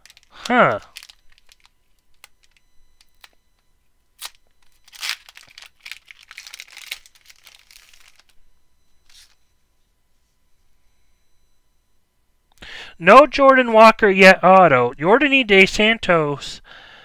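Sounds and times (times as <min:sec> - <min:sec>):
foil wrapper tearing and crinkling: 0:00.0 - 0:03.3, 0:04.2 - 0:08.4.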